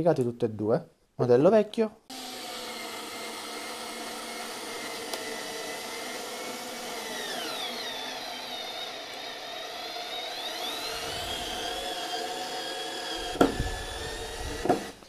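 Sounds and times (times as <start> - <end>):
cordless screwdriver motor whine: 2.1 - 15.0
sharp knocks: 13.3 - 13.7, 14.6 - 14.9.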